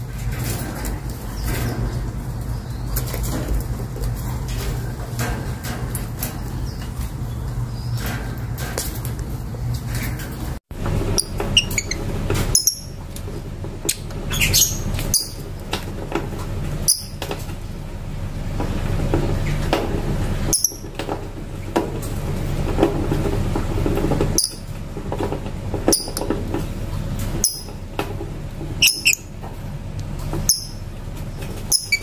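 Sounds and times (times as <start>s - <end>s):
low background hum: 0.0s - 32.0s
lovebirds chirping and squeaking: 0.4s - 5.0s, 6.0s - 8.6s, 9.5s - 13.0s, 13.8s - 15.6s, 16.8s - 17.3s, 20.4s - 21.0s, 24.3s - 24.7s, 25.9s - 26.4s, 27.4s - 27.8s, 28.8s - 29.4s, 30.4s - 32.0s.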